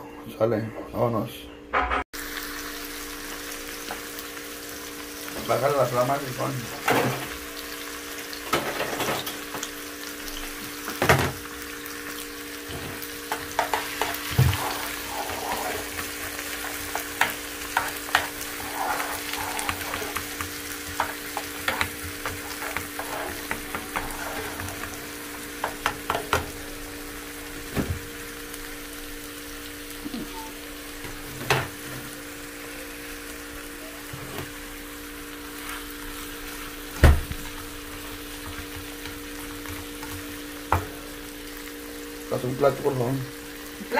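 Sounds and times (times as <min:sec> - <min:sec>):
vegetables sizzling in a pan: 0:02.2 - 0:43.9
spatula scraping and tapping pan: 0:16.7 - 0:24.9.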